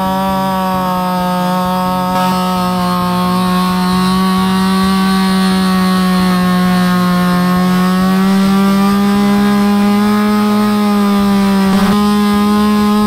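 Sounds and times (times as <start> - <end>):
chainsaw cutting log: 0.0 - 13.0.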